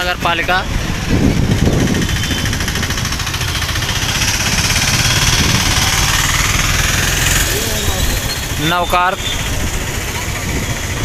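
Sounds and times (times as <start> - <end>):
street traffic: 0.0 - 11.0
small engine throbbing: 1.4 - 8.7.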